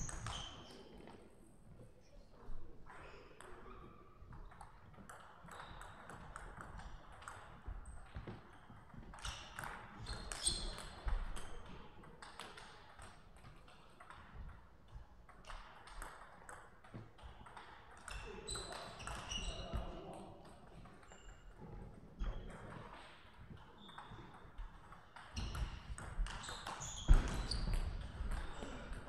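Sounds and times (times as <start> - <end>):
ball clicking on rackets and table: 4.4 - 19.8.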